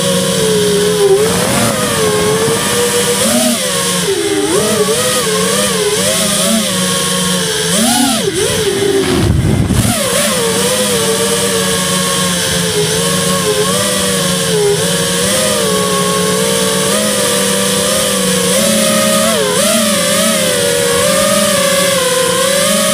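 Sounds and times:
rc car motor whining: 0.0 - 22.9
brief low rumble: 1.0 - 4.1.

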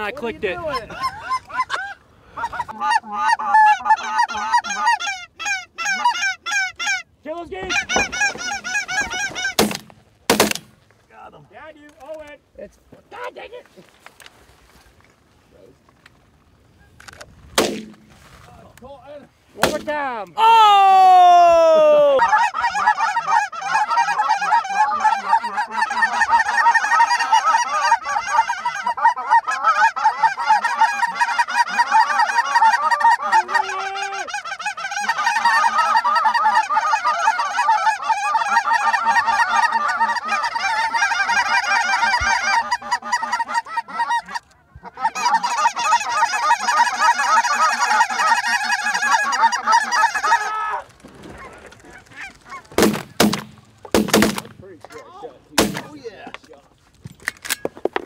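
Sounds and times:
geese honking overhead: 0.0 - 9.9, 22.0 - 55.9.

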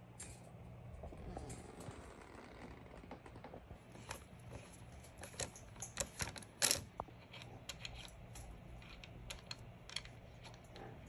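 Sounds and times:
metal clicks and taps: 5.2 - 10.9.

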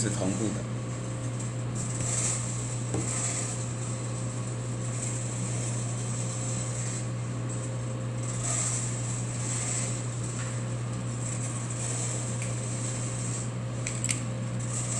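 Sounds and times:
coffee roaster fan hum: 0.0 - 14.9.

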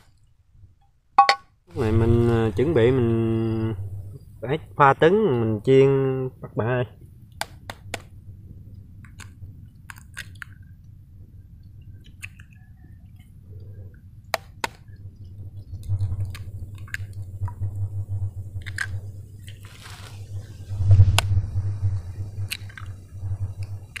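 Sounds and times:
utensils tapping a bowl: 1.2 - 1.4.

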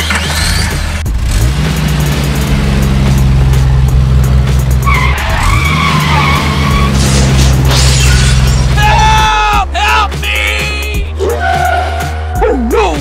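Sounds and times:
tire screech: 0.0 - 1.6, 4.8 - 9.2, 11.2 - 12.4
race car engine revving: 0.0 - 7.7.

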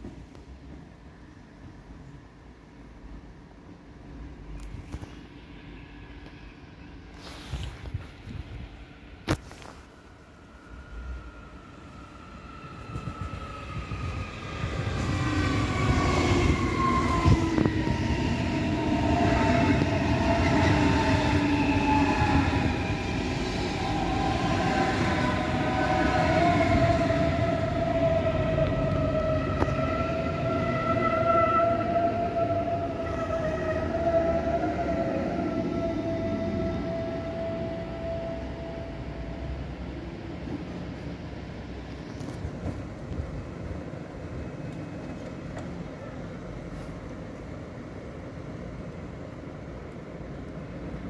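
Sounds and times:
train wheels rumbling on rails: 10.7 - 51.0.

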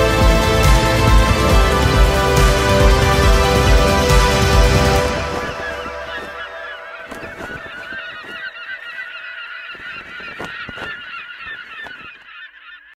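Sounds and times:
flock of birds calling: 0.0 - 13.0.

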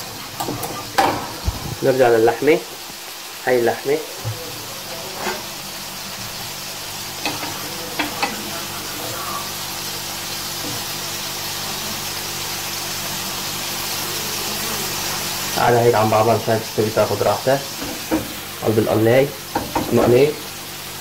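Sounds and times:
meat sizzling in frying pan: 0.0 - 21.0
wooden spatula knocking pan: 19.5 - 20.1.

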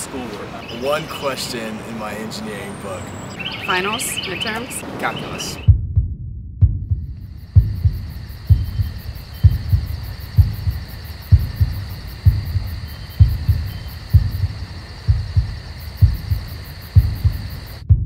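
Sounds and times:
faint high hiss: 0.0 - 4.7
heartbeat thumping: 5.6 - 18.0.

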